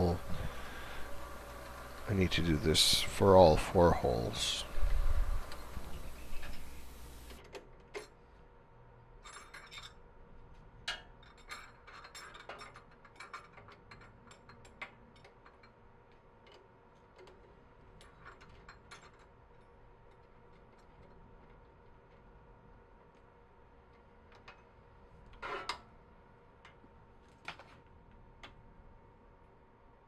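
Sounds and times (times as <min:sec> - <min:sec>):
faint steady hum: 0:00.0 - 0:10.6.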